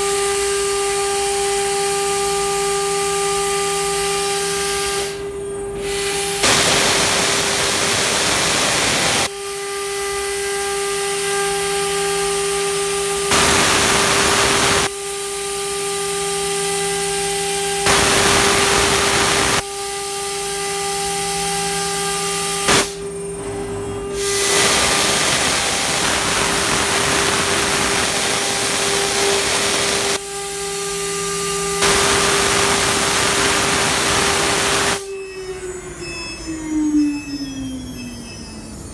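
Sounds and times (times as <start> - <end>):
router spindle whine: 0.0 - 38.9
bit cutting plywood hiss: 4.0 - 9.3, 11.5 - 14.9, 17.1 - 19.6, 20.8 - 23.1, 24.1 - 30.2, 30.9 - 35.1.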